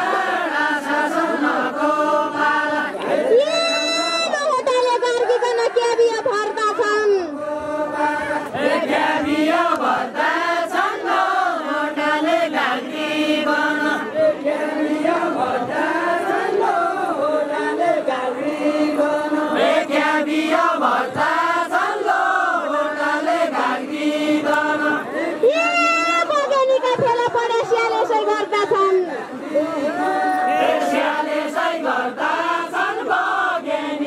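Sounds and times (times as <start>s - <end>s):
group singing folk song: 0.0s - 3.5s, 7.2s - 25.9s, 29.1s - 34.0s.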